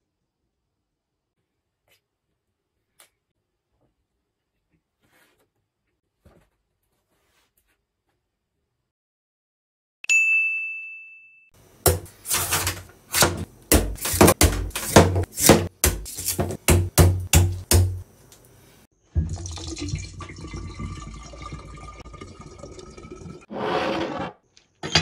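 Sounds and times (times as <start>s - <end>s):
knife chopping coconut: 11.9s - 18.0s
water pouring into jug: 19.2s - 23.5s.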